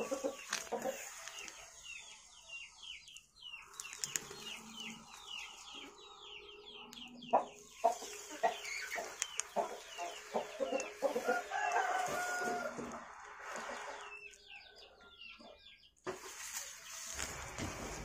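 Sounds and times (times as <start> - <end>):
chicken clucking and squawking: 0.0 - 1.3, 4.3 - 14.2.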